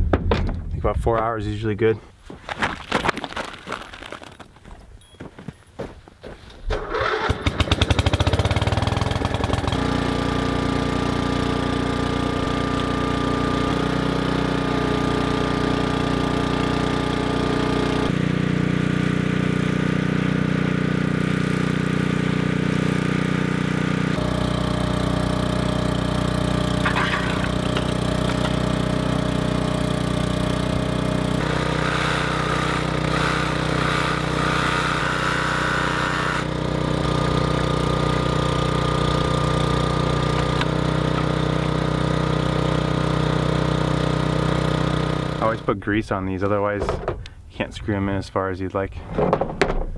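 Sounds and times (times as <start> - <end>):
small gasoline engine running: 6.8 - 45.7
higher buzz: 11.8 - 45.7.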